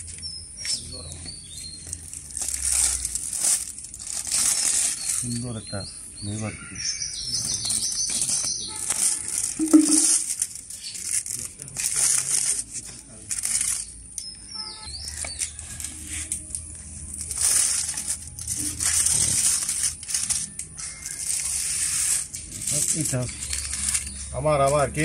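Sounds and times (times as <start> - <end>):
aluminium foil crinkling: 0.0 - 5.8, 7.2 - 14.3, 15.0 - 25.0.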